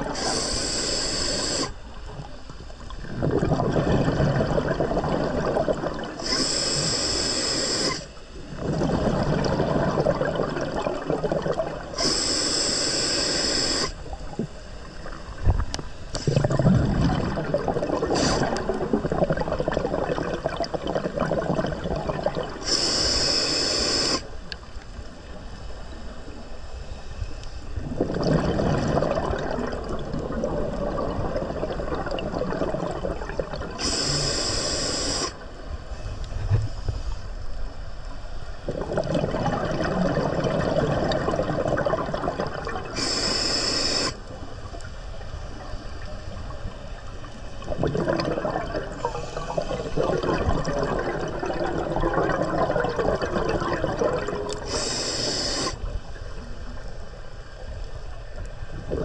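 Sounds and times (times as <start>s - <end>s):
regulator inhale hiss: 0.1s - 1.9s, 6.2s - 8.2s, 11.9s - 14.1s, 18.0s - 18.7s, 22.6s - 24.4s, 33.7s - 37.6s, 42.9s - 44.4s, 48.9s - 50.1s, 54.5s - 55.9s
exhaled bubbles rushing: 2.1s - 6.3s, 8.4s - 12.0s, 14.1s - 22.6s, 27.8s - 33.8s, 38.6s - 43.0s, 47.5s - 54.8s, 58.7s - 59.0s.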